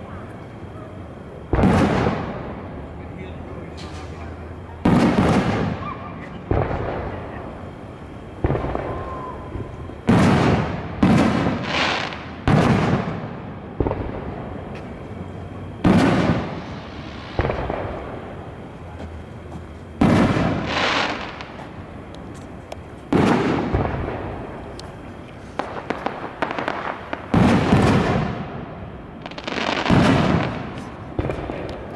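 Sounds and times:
firework crackling: 0:00.0 - 0:31.9
firework booms: 0:01.4 - 0:02.8, 0:03.8 - 0:15.0, 0:15.6 - 0:18.6, 0:20.0 - 0:21.8, 0:23.1 - 0:24.7, 0:25.5 - 0:31.9.

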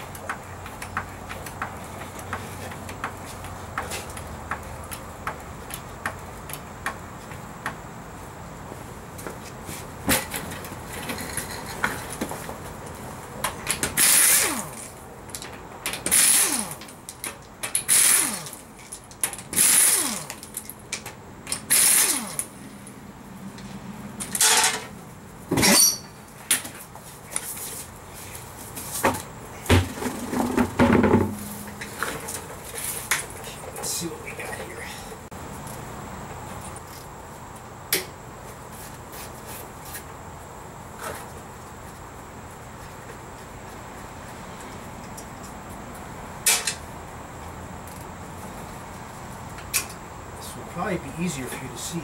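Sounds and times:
pneumatic impact wrench bursts: 0:14.0 - 0:14.9, 0:16.0 - 0:16.9, 0:17.7 - 0:18.6, 0:19.4 - 0:20.5, 0:21.5 - 0:22.5
knocks and clatter: 0:29.0 - 0:32.5.

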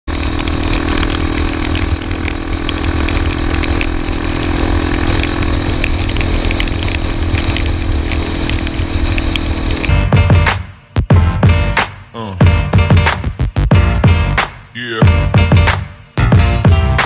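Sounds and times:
tyres hissing on wet road: 0:00.1 - 0:09.9
wind rumble on microphone: 0:00.1 - 0:10.0
motorcycle engine cruising: 0:00.1 - 0:10.6.

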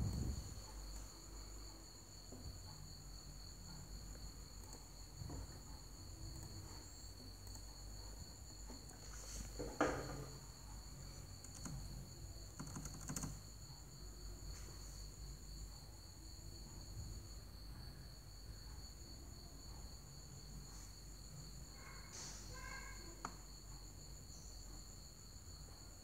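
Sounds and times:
crickets trilling: 0:00.0 - 0:26.0
hands clicking on laptop: 0:11.4 - 0:11.9, 0:12.5 - 0:13.4.

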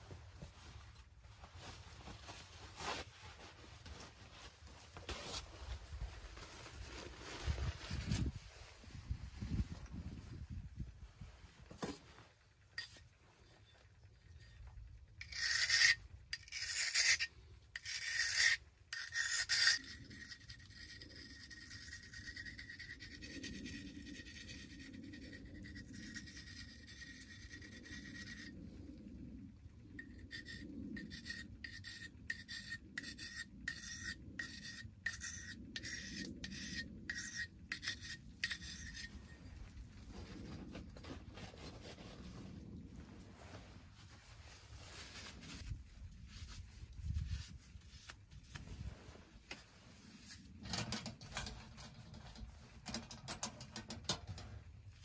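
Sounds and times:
knife scraping on sharpening stone: 0:12.8 - 0:13.0, 0:15.2 - 0:24.9, 0:30.0 - 0:39.2.

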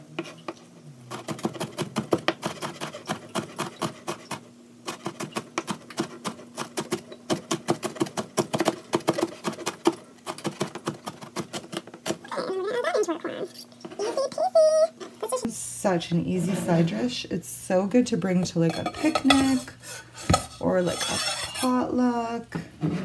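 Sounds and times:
knife chopping on plastic board: 0:01.1 - 0:12.2.

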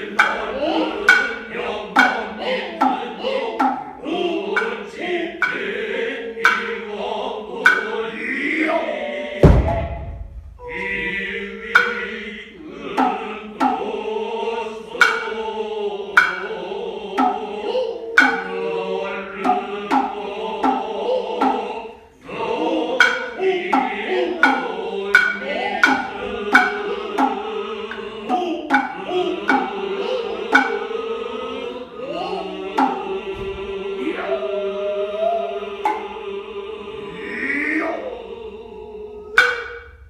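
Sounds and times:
chorus chanting in unison: 0:00.0 - 0:40.0
hand drum strokes: 0:00.1 - 0:04.0, 0:09.4 - 0:11.0, 0:16.2 - 0:16.6, 0:17.2 - 0:18.6, 0:23.0 - 0:30.9, 0:32.6 - 0:33.6, 0:39.4 - 0:40.0
deep heavy thump: 0:09.4 - 0:10.9.

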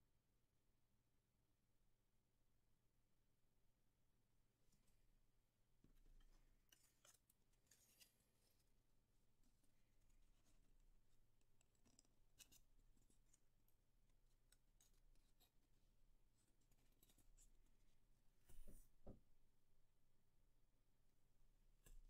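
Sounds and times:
soft thump: 0:18.5 - 0:19.2.

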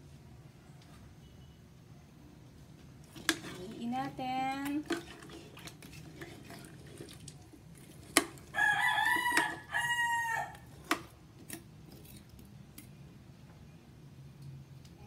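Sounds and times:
ladle stirring in pot: 0:03.0 - 0:12.6
high crowing call: 0:08.5 - 0:10.7.

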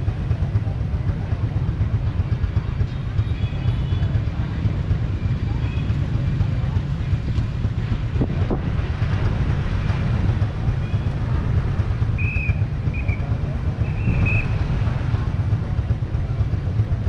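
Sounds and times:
low rumble of street traffic: 0:00.0 - 0:17.0.

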